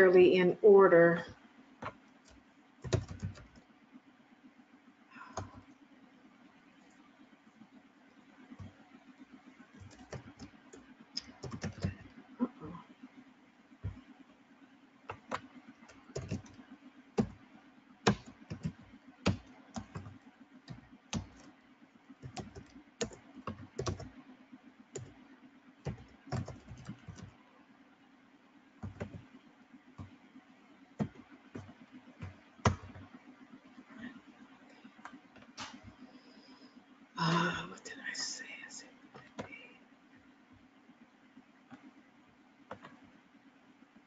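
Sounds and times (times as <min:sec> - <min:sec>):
steady low hum: 0:00.0 - 0:44.0
computer keyboard typing: 0:01.8 - 0:03.7, 0:05.2 - 0:05.8, 0:08.5 - 0:12.2, 0:13.8 - 0:14.1, 0:15.1 - 0:21.5, 0:22.1 - 0:24.2, 0:25.0 - 0:25.2, 0:25.8 - 0:27.4, 0:28.8 - 0:33.2, 0:39.1 - 0:39.6, 0:42.7 - 0:43.0.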